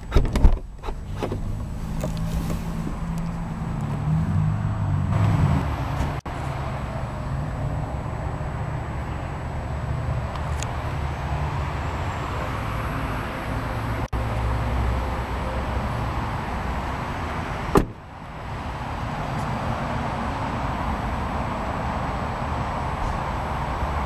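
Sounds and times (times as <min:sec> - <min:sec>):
car door shutting: 0:00.0 - 0:04.1, 0:17.7 - 0:18.0
steady outdoor rumble: 0:00.0 - 0:24.0.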